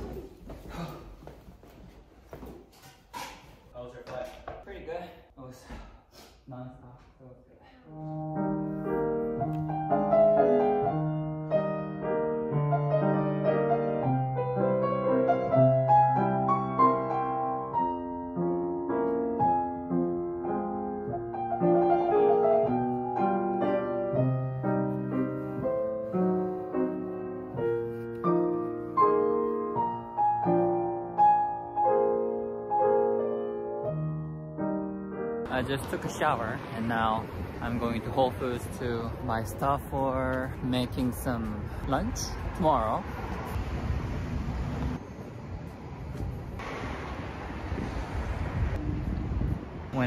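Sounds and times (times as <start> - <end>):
slow gentle piano piece: 7.9 - 36.4.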